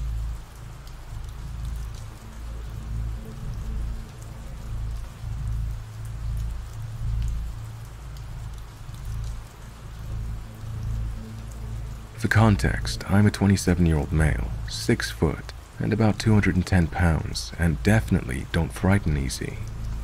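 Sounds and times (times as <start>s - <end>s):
steady rain hiss: 0.0s - 20.0s
low rumbling drone: 10.0s - 18.3s.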